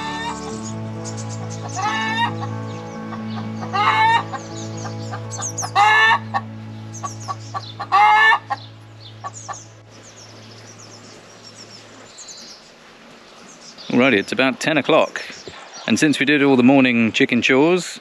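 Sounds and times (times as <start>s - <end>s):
hen calling loudly: 0.0s - 9.8s
soft background music: 0.0s - 12.7s
small birds chirping faintly: 0.0s - 17.8s.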